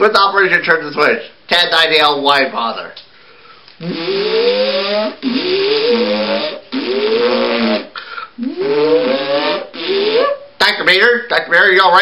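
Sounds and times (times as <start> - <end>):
person imitating machine whirring: 3.8 - 10.5.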